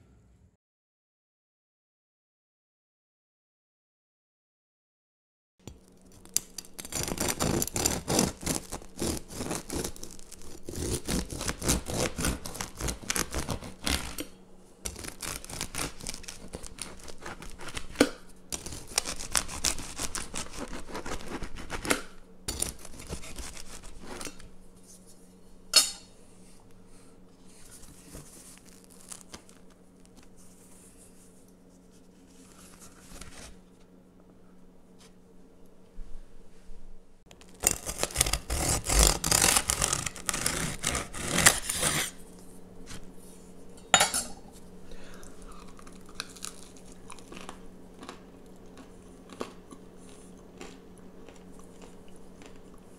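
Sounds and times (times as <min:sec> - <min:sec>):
bread crust crunching under knife: 0:05.7 - 0:24.5, 0:27.7 - 0:30.6, 0:37.3 - 0:43.1, 0:45.2 - 0:52.9.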